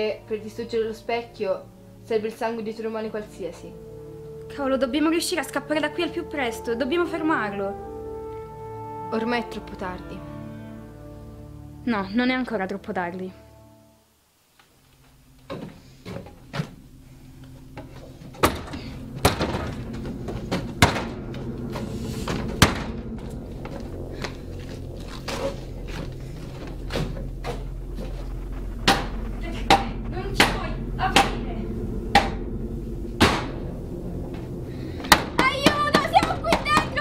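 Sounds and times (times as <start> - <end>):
steady low drone: 15.2 - 37.0
sharp knocks: 28.8 - 32.6, 33.2 - 33.8.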